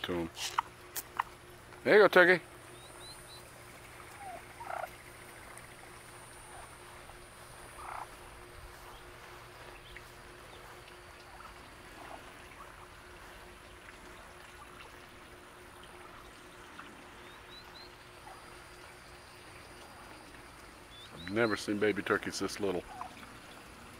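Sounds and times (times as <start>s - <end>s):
steady faint hum: 0.0s - 23.9s
soft animal calls: 2.7s - 5.3s, 6.3s - 13.5s, 15.9s - 21.7s, 22.8s - 23.7s.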